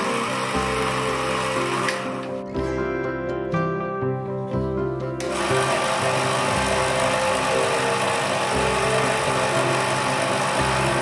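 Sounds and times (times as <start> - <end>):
mini-lathe motor running: 0.0 - 2.3, 5.2 - 11.0.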